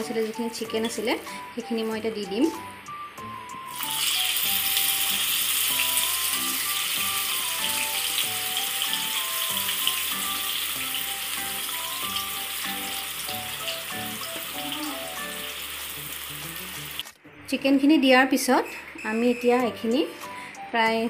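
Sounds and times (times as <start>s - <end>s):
background music simple melody: 0.0s - 21.0s
chicken sizzling in hot oil: 3.6s - 17.1s.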